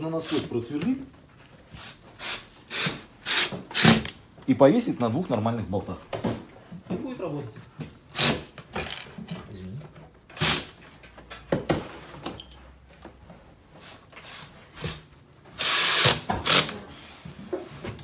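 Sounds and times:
cordless drill driving screw: 15.6s - 16.8s.

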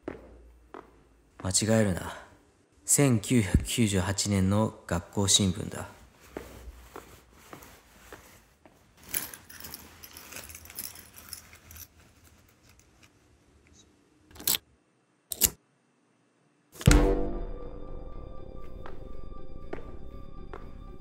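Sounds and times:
keys jangling: 9.0s - 13.1s.

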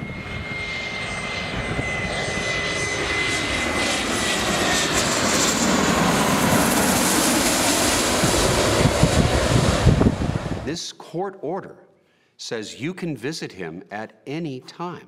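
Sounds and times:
jet turbine whine: 0.0s - 10.7s
jet rush: 0.1s - 10.7s.

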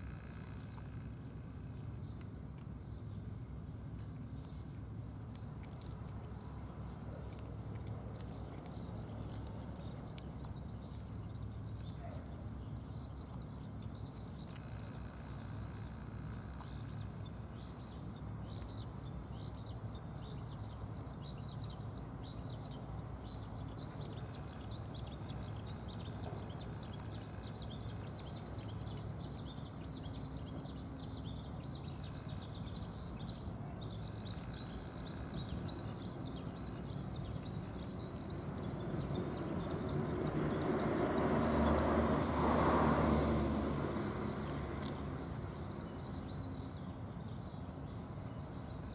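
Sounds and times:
small birds chirping: 0.0s - 48.9s
vehicle passing: 38.6s - 45.7s.

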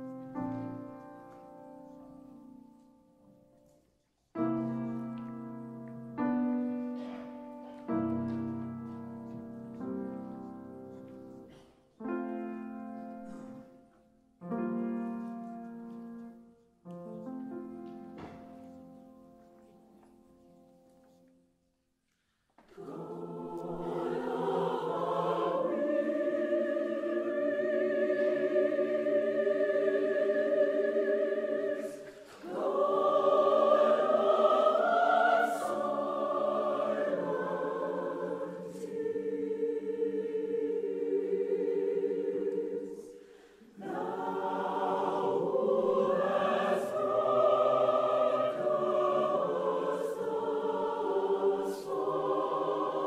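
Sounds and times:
choir singing: 4.4s - 14.9s, 22.6s - 53.0s.

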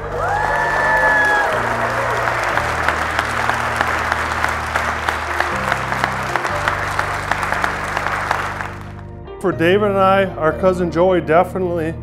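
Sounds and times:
crowd applauding: 0.0s - 9.1s
music with low sustained notes: 0.0s - 12.0s.

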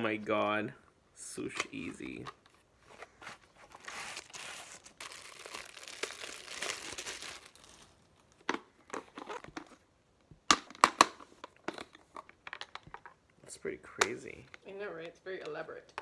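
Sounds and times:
plastic bag crinkling: 3.7s - 8.0s.

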